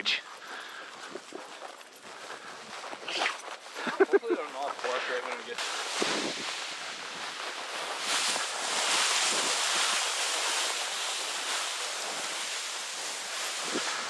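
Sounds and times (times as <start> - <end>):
dry grass swishing: 2.9 - 14.0.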